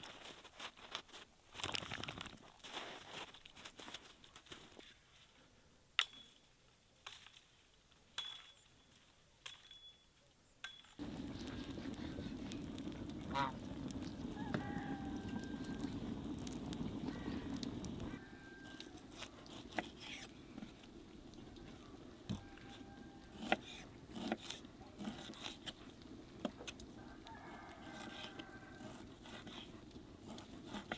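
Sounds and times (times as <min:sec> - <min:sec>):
wood fire burning: 0:11.0 - 0:30.9
geese honking: 0:13.1 - 0:13.7.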